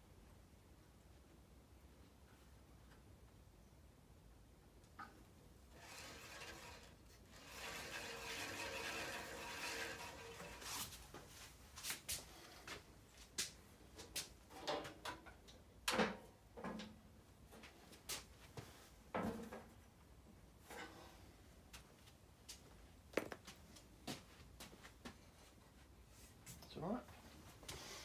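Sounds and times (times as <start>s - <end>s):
bandsaw wheel rubbing: 5.7s - 11.0s.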